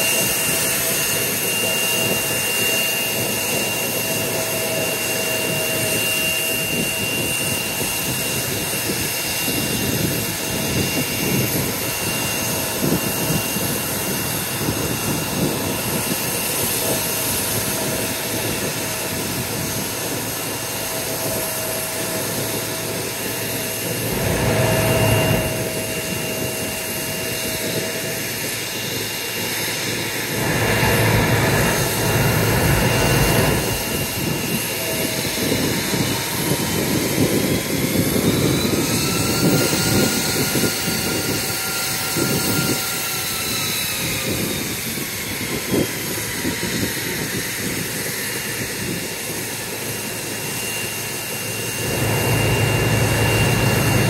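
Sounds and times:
jet engines idling: 0.0s - 54.0s
low rumble: 23.7s - 28.2s, 30.1s - 35.6s, 51.8s - 54.0s.

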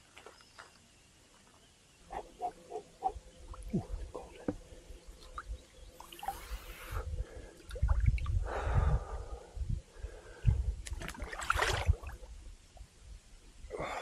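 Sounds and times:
low water rumble on microphone: 3.2s - 13.3s
hard breathing: 8.4s - 10.7s.

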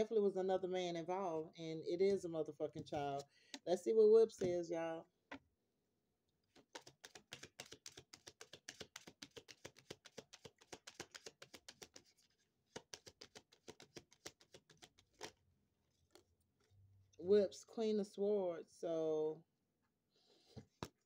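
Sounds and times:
cards being shuffled: 6.5s - 15.4s.

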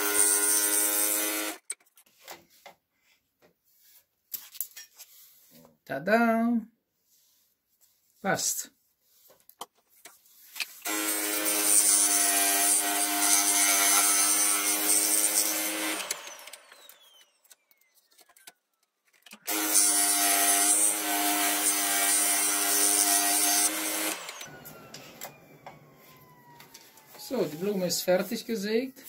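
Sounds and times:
scroll saw cutting wood: 0.0s - 1.7s, 10.5s - 18.6s, 19.2s - 28.4s.

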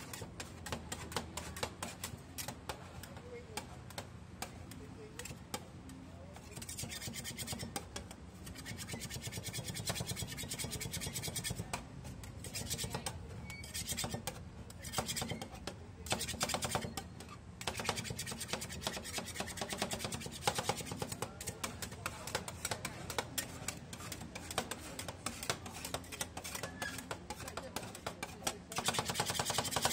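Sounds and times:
metal spatula scraping steel plate: 16.2s - 29.9s.

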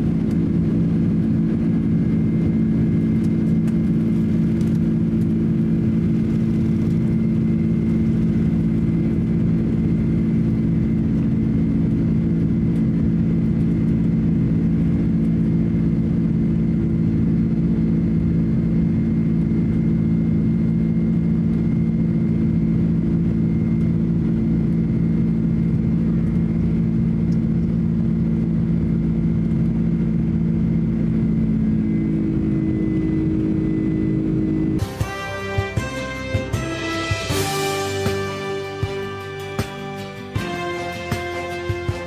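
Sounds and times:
jet engine drone in cabin: 0.0s - 42.0s
higher engine tone: 22.6s - 42.0s.

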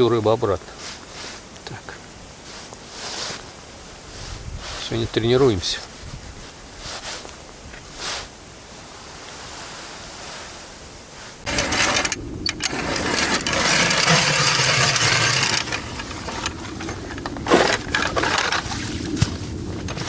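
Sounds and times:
ice auger grinding ice: 11.5s - 19.3s.

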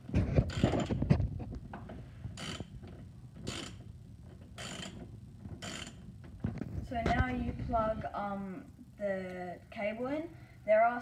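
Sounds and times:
socket ratchet strokes: 0.4s - 1.0s, 2.4s - 2.8s, 3.4s - 3.9s, 4.5s - 6.1s.

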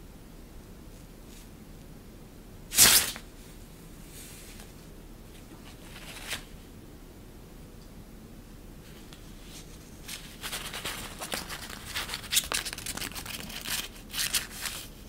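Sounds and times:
synthetic fabric rustling: 5.4s - 6.6s, 8.8s - 15.0s.

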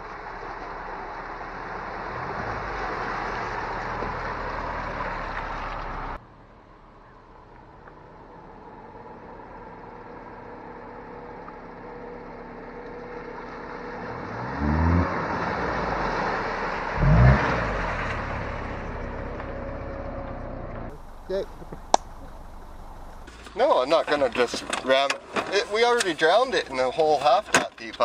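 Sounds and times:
tyre noise on wet ground: 0.0s - 6.2s, 11.3s - 28.0s
car engine revving: 0.7s - 6.2s, 12.5s - 24.8s.

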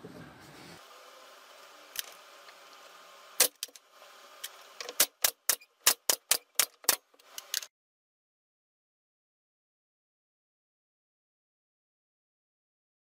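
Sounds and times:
nail gun firing: 3.4s - 3.7s, 4.8s - 7.1s.

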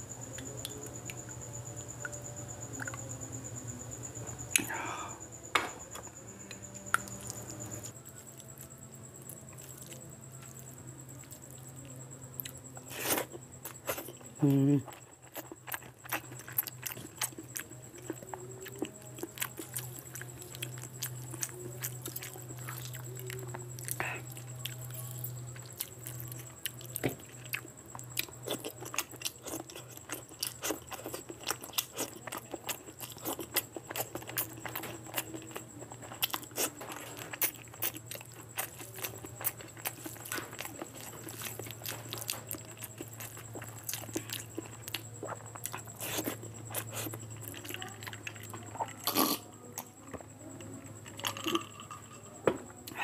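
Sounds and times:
steady low hum: 0.0s - 53.0s
wet chewing and mouth clicks: 12.4s - 49.9s.

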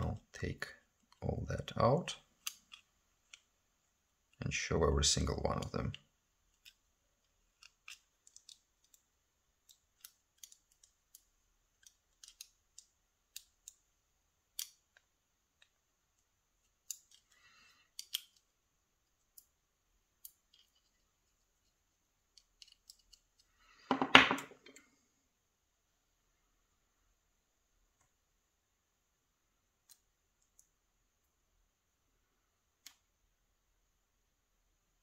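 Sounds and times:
small metal clicks: 7.5s - 9.0s, 9.6s - 13.8s, 16.8s - 18.5s, 20.2s - 21.0s, 22.3s - 23.5s.

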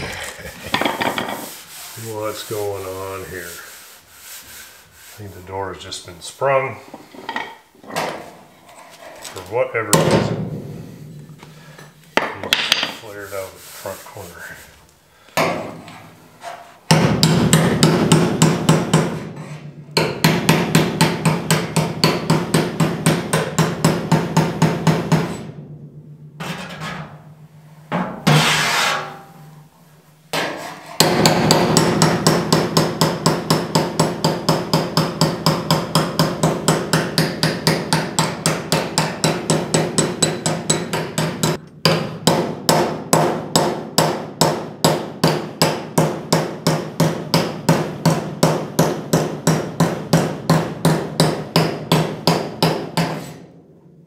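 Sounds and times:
hammer tapping on steel: 31.0s - 42.4s.

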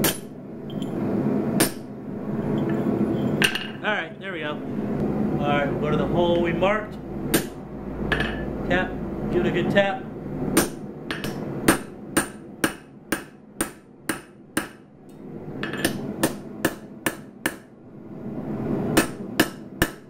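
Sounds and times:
hammer striking metal punch: 0.0s - 0.8s, 7.3s - 7.5s, 10.6s - 14.8s, 15.6s - 17.7s, 19.0s - 20.0s.

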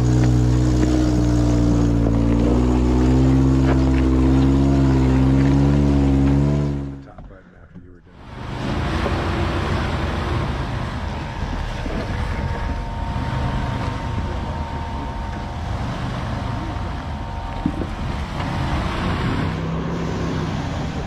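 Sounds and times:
engine running steadily: 0.0s - 21.0s
faint thin whine: 7.0s - 21.0s.

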